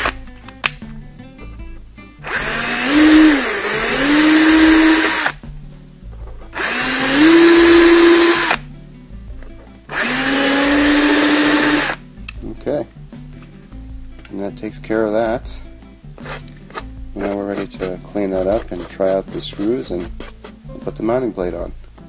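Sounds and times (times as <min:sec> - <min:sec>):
cordless drill whining: 0:02.2 - 0:05.4, 0:06.5 - 0:08.6, 0:09.9 - 0:12.0.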